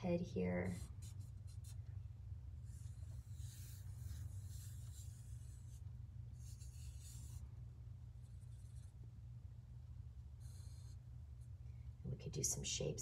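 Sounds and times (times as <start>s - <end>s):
steady low hum: 0.0s - 13.0s
marker scratching on paper: 0.6s - 1.8s, 2.6s - 7.4s, 8.2s - 9.0s, 10.4s - 11.0s.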